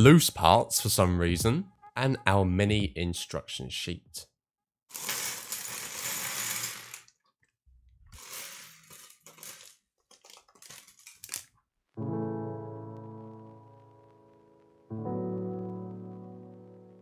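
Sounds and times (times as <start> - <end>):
plastic pieces clattering on wood: 4.9 - 7.3, 8.2 - 11.6
plastic bag rustling: 8.2 - 11.6
sharp clicks of plastic pieces: 8.9 - 11.6.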